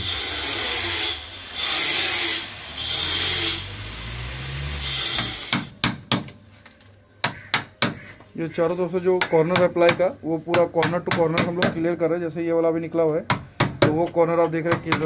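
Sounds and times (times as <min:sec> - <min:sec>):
hand saw cutting plywood: 0:00.0 - 0:05.7.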